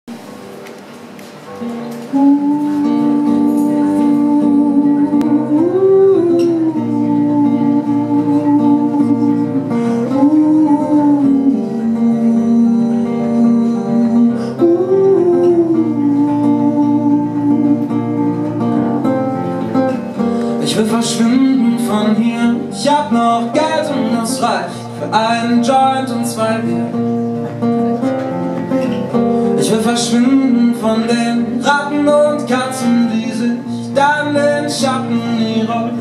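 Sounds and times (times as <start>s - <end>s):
acoustic guitar: 0.0s - 36.0s
long-held wordless vocal note: 2.1s - 19.1s.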